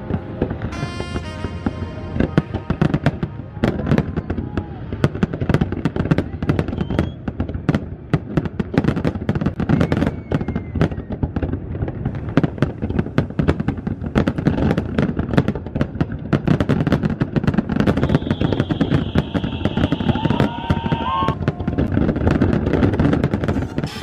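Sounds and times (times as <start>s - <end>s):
fireworks rising whistle: 0.0s - 5.8s, 6.6s - 7.3s, 9.6s - 11.2s, 17.7s - 22.3s, 23.0s - 24.0s
fireworks bangs and crackling: 0.0s - 24.0s.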